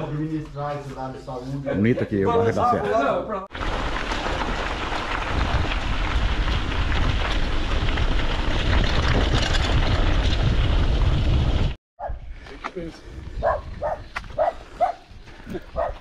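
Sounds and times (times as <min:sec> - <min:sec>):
bike clicks and rattles: 0:03.6 - 0:11.7
wind buffeting microphone: 0:05.1 - 0:12.4, 0:13.0 - 0:16.0.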